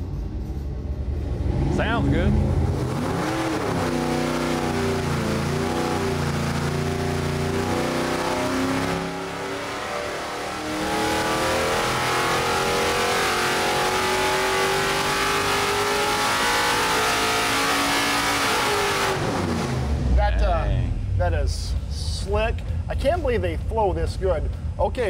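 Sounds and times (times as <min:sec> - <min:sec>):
engine revving on dyno: 0:01.0 - 0:20.2.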